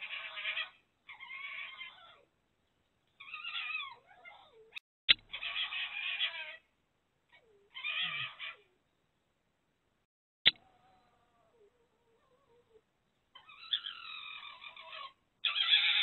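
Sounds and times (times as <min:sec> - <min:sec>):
fox calling: 0:00.0 - 0:02.3, 0:03.2 - 0:06.7, 0:07.4 - 0:08.8, 0:13.4 - 0:16.0.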